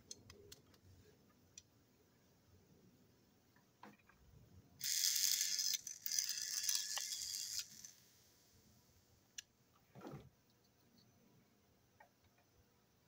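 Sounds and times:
toy train motor whirring: 4.8 - 8.2.

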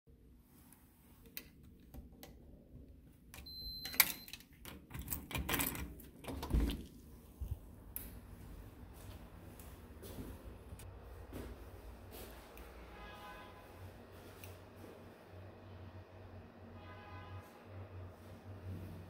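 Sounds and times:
electronic lock beep: 3.4 - 4.4.

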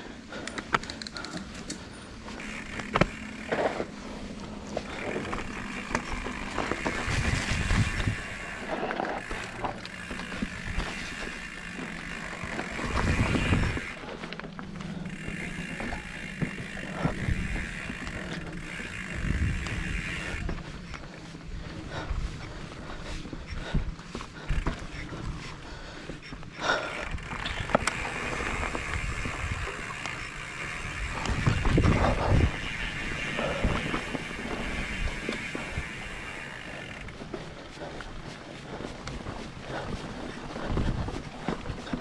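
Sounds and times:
bike rattling over bumps: 0.0 - 42.0
tyres on dirt trail: 0.0 - 42.0
bike freehub ratchet buzzing: 0.3 - 14.0, 14.7 - 20.9, 24.4 - 25.4, 26.6 - 37.2.

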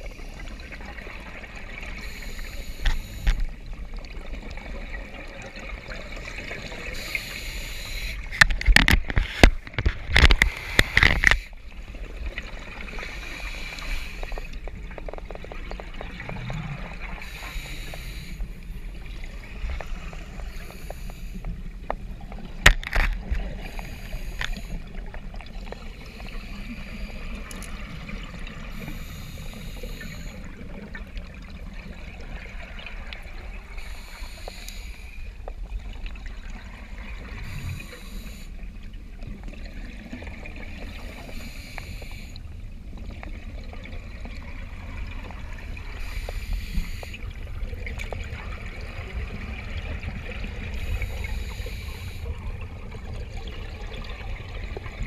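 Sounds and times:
scuba regulator breathing: 1.9 - 3.6, 6.1 - 11.6, 12.8 - 14.7, 17.1 - 18.8, 19.7 - 21.6, 23.5 - 25.0, 25.8 - 27.7, 28.6 - 30.6, 33.7 - 35.5, 37.3 - 38.6, 40.8 - 42.5, 45.9 - 47.4, 50.6 - 52.6.

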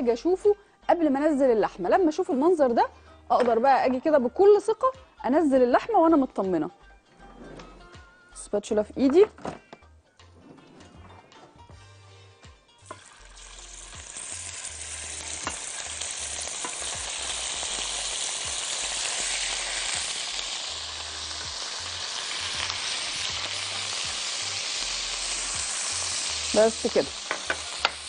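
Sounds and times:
meat sizzling in a pan: 12.8 - 28.0.

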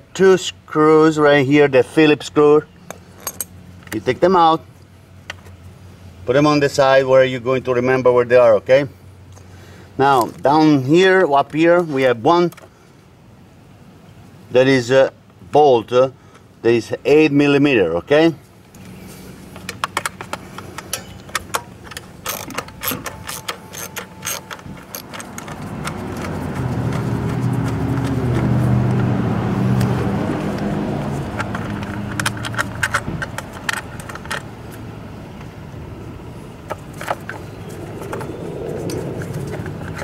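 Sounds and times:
motor vehicle engine: 18.4 - 40.0
hand tools clinking on metal: 19.8 - 27.4.

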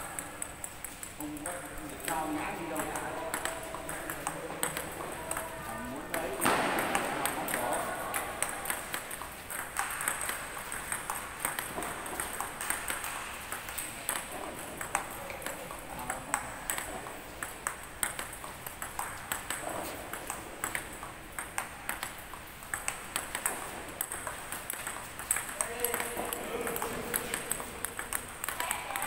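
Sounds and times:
table tennis ball clicks: 6.1 - 29.0.

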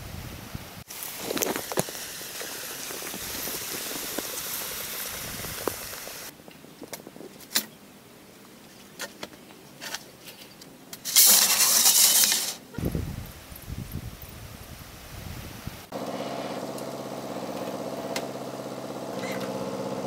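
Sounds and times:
hose spraying onto soil: 0.8 - 6.3, 11.0 - 13.8.

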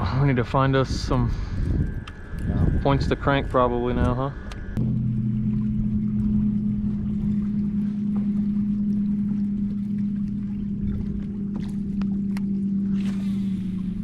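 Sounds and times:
electric trolling motor humming: 0.0 - 14.0.

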